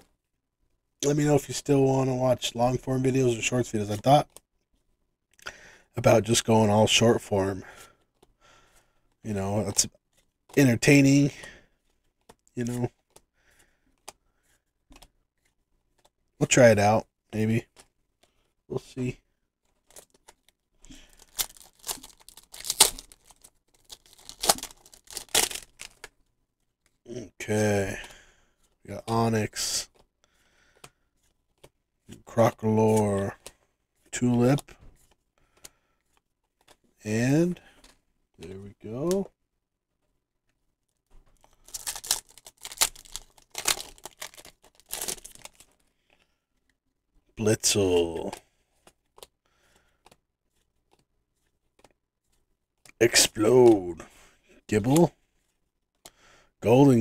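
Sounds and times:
foil wrapper tearing and crinkling: 0:21.0 - 0:26.0, 0:41.4 - 0:45.8.

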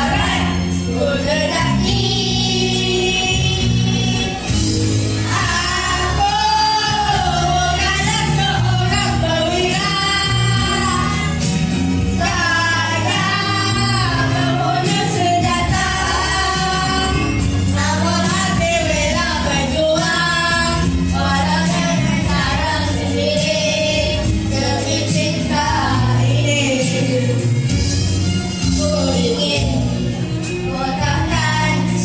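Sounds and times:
musical accompaniment: 0:00.0 - 0:32.0.

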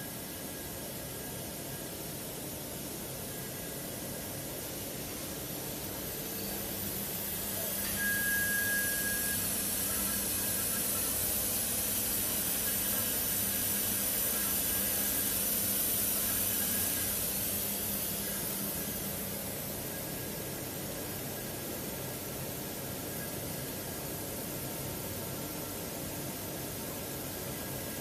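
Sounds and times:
laser cutting machine hiss: 0:00.0 - 0:28.0
brief high whistle: 0:07.7 - 0:09.7.

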